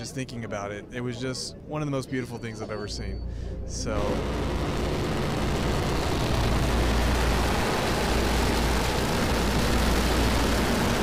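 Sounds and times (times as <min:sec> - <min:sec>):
rocket engines roaring: 0:03.7 - 0:11.0.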